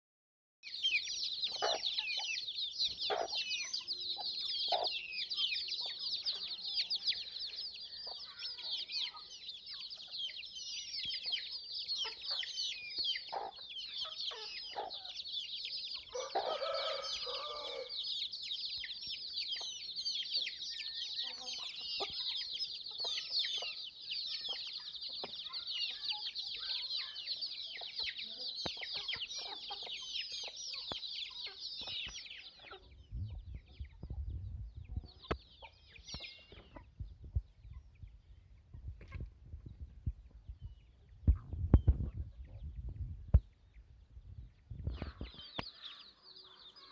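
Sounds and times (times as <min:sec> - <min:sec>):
chicks peeping: 0:00.6 - 0:46.9
hen clucking: 0:00.9 - 0:34.2, 0:44.9 - 0:46.9
adult chicken calling: 0:16.0 - 0:18.0.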